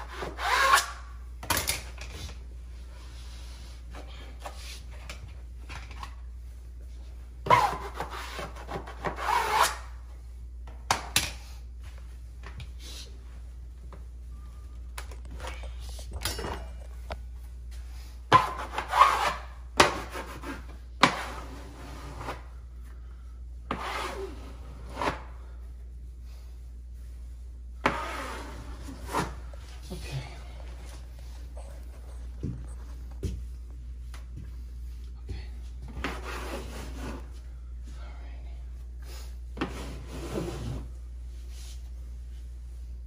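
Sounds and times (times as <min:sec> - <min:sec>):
smoothing tool scraping wallpaper: 0:23.7 - 0:25.2, 0:27.8 - 0:29.4, 0:36.0 - 0:37.3.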